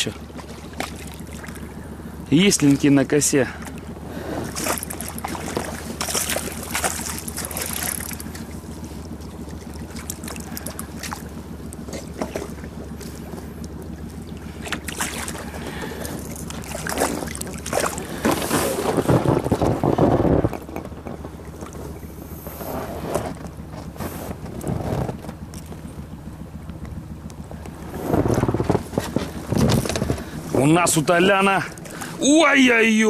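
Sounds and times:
low hum: 0:00.0 - 0:33.0
fish splashing at the surface: 0:00.4 - 0:01.8, 0:04.4 - 0:08.6, 0:09.4 - 0:13.2, 0:14.0 - 0:19.3.

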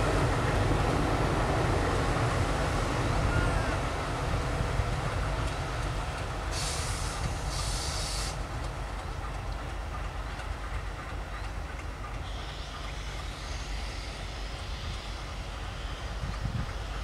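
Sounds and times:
diesel locomotive rumbling: 0:00.0 - 0:17.0
air hiss: 0:06.4 - 0:08.4, 0:12.4 - 0:17.0.

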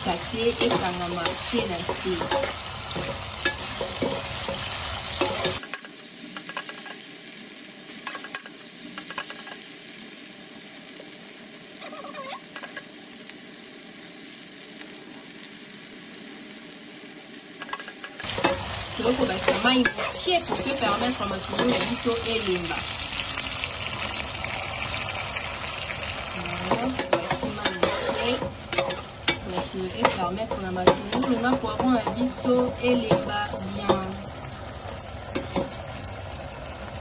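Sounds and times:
vegetables sizzling in oil: 0:00.0 - 0:37.0
metal spoon clinking a pot: 0:26.7 - 0:32.2.

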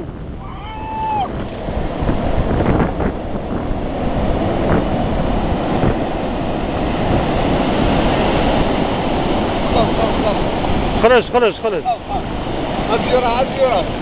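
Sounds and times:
surf washing on shore: 0:00.0 - 0:14.0
wind buffeting microphone: 0:00.0 - 0:14.0.

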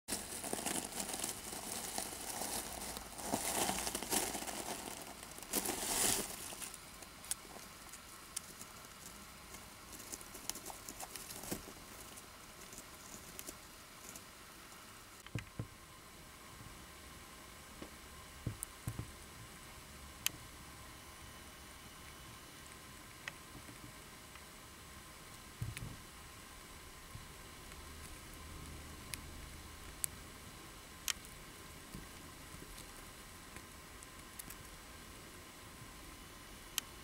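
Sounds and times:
wood shavings rustling: 0:00.1 - 0:14.3.

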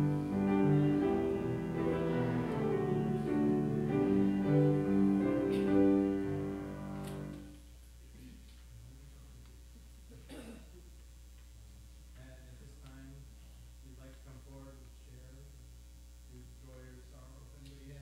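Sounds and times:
grand piano playing: 0:00.0 - 0:07.5
faint room hum: 0:00.0 - 0:18.0.

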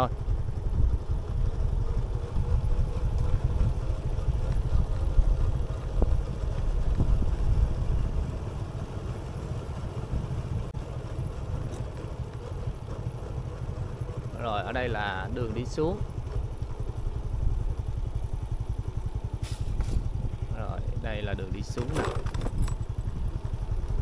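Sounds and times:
wind on microphone: 0:00.0 - 0:08.4
vehicle engine rumble: 0:00.0 - 0:24.0.

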